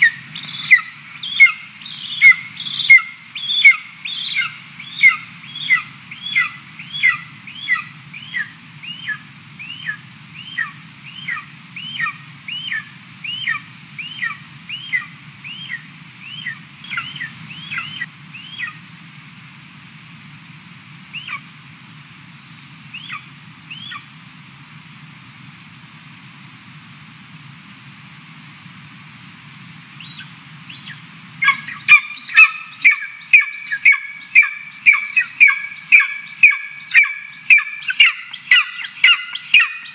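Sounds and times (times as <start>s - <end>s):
eagle calling: 0.0s - 18.8s, 21.2s - 21.4s, 22.9s - 24.1s, 30.0s - 39.9s.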